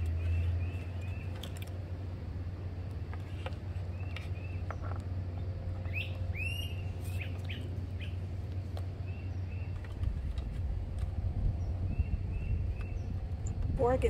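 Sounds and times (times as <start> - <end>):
birds chirping: 0.0 - 1.7, 3.1 - 10.5, 11.6 - 14.0
low hum: 0.0 - 14.0
sweeping bird calls: 0.1 - 1.5, 5.8 - 8.3, 9.0 - 9.9.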